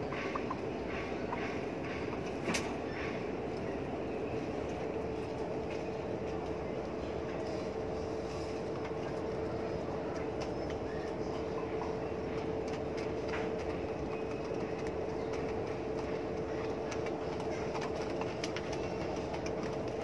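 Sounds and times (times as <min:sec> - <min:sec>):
steady machine hum: 0:00.0 - 0:20.0
pigeon pecking at plastic feeder: 0:08.7 - 0:20.0.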